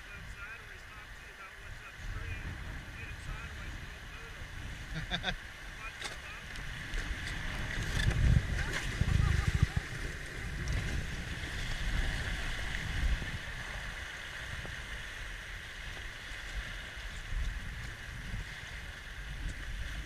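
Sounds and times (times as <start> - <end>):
wind on microphone: 0.0 - 20.0
river water rushing: 4.4 - 20.0.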